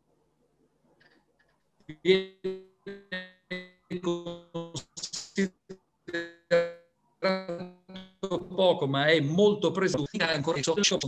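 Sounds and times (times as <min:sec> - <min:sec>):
garbled voice buzzy tones: 0:01.9 - 0:08.8.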